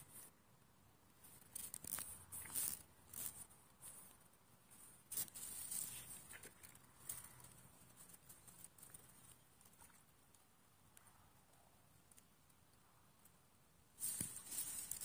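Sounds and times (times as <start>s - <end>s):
faint background hiss: 0.0s - 15.0s
rustles: 1.1s - 15.0s
faint clicks: 6.3s - 13.4s.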